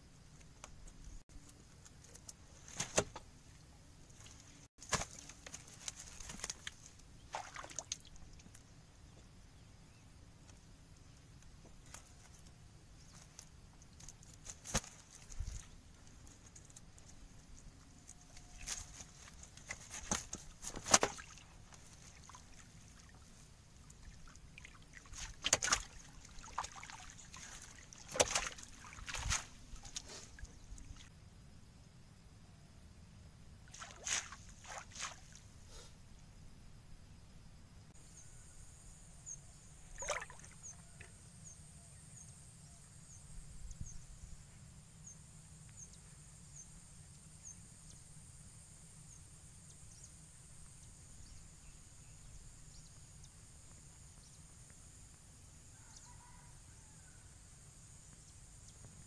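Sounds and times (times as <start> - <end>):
water sloshing and dripping: 4.1 - 8.6, 18.6 - 31.1, 33.7 - 35.4, 39.9 - 40.7
wet net rustling: 4.2 - 7.9, 18.4 - 23.4, 24.6 - 31.1, 33.7 - 35.4.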